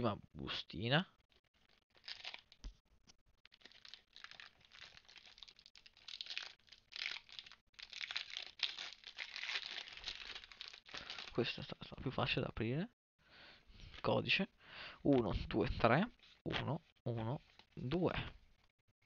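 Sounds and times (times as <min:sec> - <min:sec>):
foil wrapper crinkling and tearing: 0:01.4 - 0:02.7, 0:03.4 - 0:11.4.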